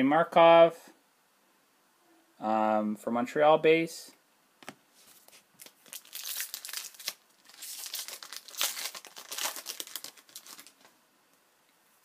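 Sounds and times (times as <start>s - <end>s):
foil wrapper crinkling and tearing: 5.6s - 11.0s.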